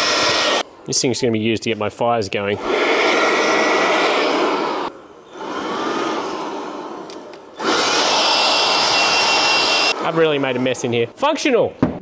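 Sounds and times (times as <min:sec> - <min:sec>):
cordless blower rushing air: 0:00.0 - 0:00.6, 0:02.6 - 0:10.5.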